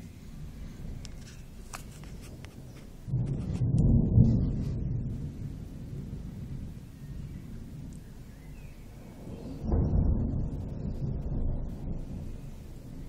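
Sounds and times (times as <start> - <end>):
thunder rumbling: 0.0 - 13.0
faint clicks: 7.9 - 8.1.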